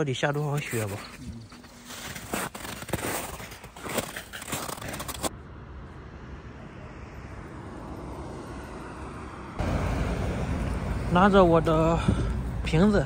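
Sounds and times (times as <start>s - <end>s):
road traffic hum: 0.0s - 13.0s
footsteps crunching in snow: 0.4s - 5.3s.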